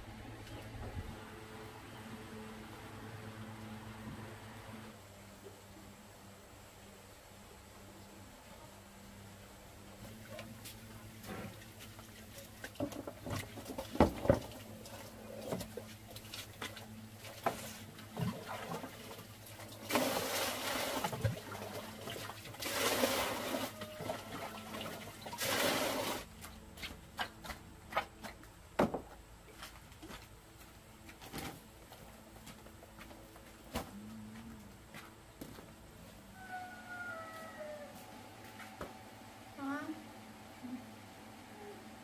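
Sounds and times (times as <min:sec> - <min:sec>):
water pouring into plastic basin: 0:18.2 - 0:26.3.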